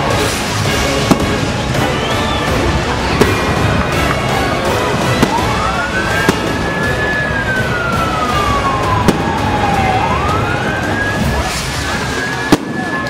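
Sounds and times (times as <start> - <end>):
loud steady din: 0.0 - 13.0
sharp bangs: 0.1 - 13.0
siren wailing: 4.5 - 13.0.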